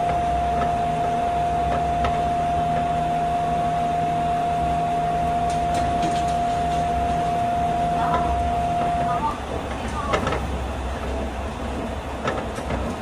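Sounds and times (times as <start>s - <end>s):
high-pitched whine: 0.0s - 10.3s
train low rumble: 0.0s - 13.0s.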